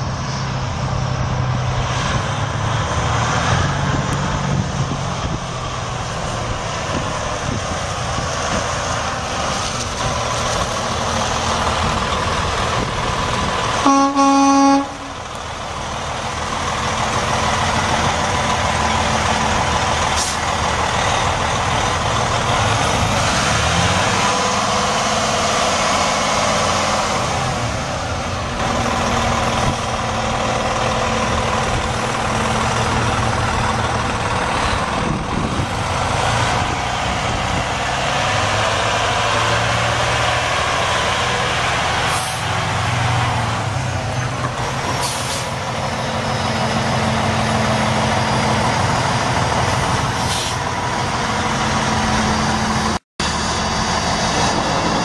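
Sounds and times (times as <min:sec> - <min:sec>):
truck diesel engine running: 0:00.0 - 0:55.0
truck horn: 0:13.8 - 0:15.4.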